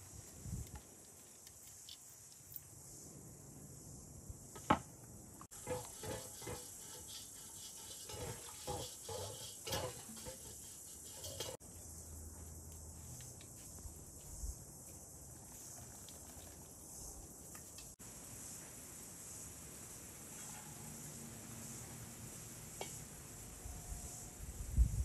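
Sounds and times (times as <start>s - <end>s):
faint steady hiss: 0.0s - 25.0s
cooking utensils knocking and clinking: 5.5s - 11.6s.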